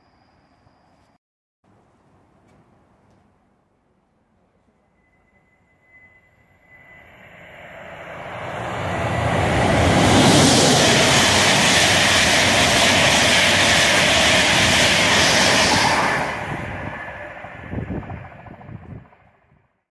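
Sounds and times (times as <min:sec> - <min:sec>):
train wheels rushing on rail: 0:06.6 - 0:19.5.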